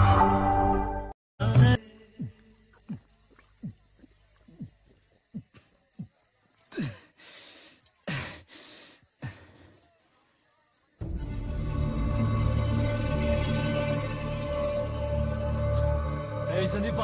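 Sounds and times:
loud music: 0.0 - 1.8, 11.1 - 17.0.

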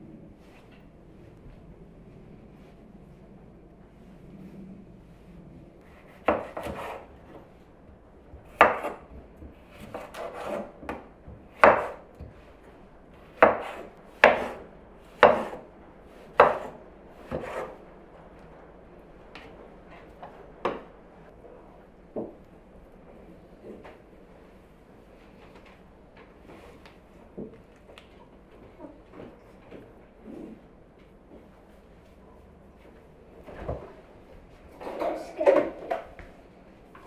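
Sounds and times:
knife chopping on wooden board: 5.9 - 7.1, 8.5 - 9.1, 9.7 - 12.3, 13.2 - 14.6, 15.2 - 15.6, 16.3 - 17.7.

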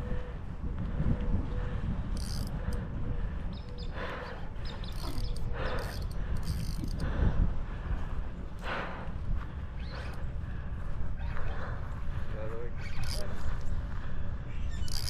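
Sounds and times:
low wind rumble: 0.0 - 15.0
fishing reel clicking: 2.1 - 2.9, 4.6 - 7.0, 12.9 - 13.4, 14.7 - 15.0.

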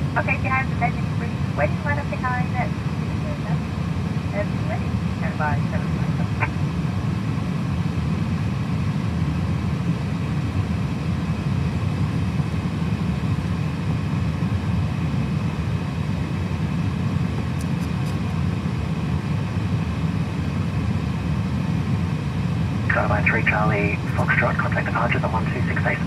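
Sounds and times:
cockpit air-conditioning noise: 0.0 - 26.0
jet engines idling: 0.0 - 26.0.

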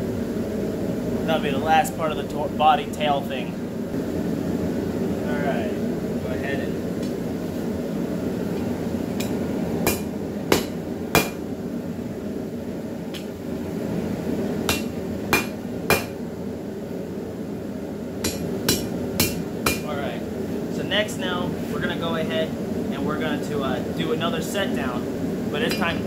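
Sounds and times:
steady low rush: 0.0 - 15.6
hammer striking steel on anvil: 9.2 - 11.4, 14.7 - 16.2, 18.2 - 19.8, 25.7 - 26.0.

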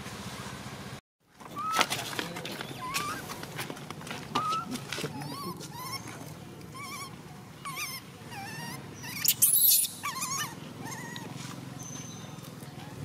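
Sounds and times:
infant monkey crying: 1.6 - 1.9, 2.8 - 3.3, 4.4 - 11.4.

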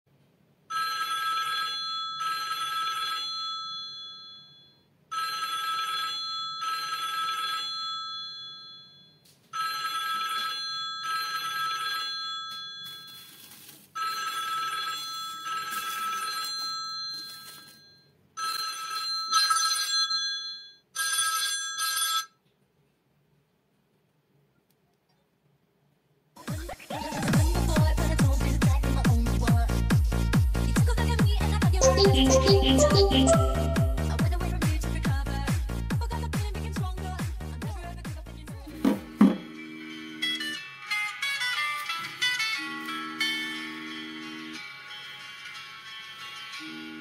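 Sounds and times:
telephone bell ringtone: 0.7 - 13.4, 14.0 - 22.4, 31.8 - 34.2.

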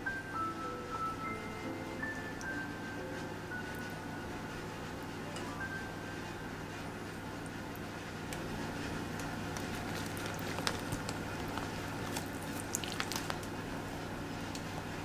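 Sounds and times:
steady low hum: 0.0 - 15.0
hands wrapping rice paper roll: 9.0 - 14.9.

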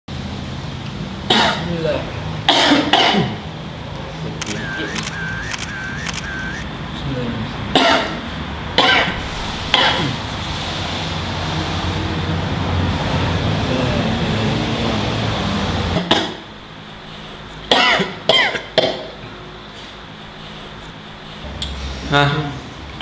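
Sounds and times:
low background hum: 4.4 - 6.6.

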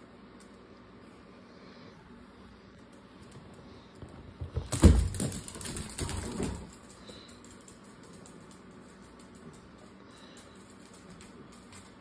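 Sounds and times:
dog paws thumping on hard floor: 3.2 - 9.7.

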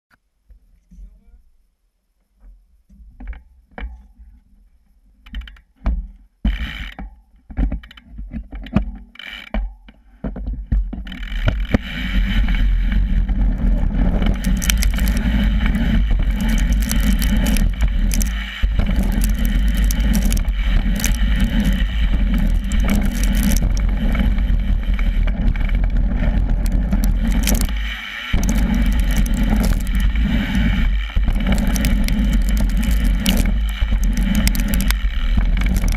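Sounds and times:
wind: 0.1 - 35.9
bike drivetrain rattle: 11.0 - 35.9
tyres rolling over gravel: 13.3 - 35.9.

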